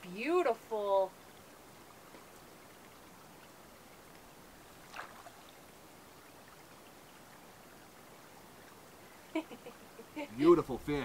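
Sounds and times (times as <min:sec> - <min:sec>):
short water splash: 0:04.7 - 0:05.6
water lapping around hands: 0:04.8 - 0:05.6.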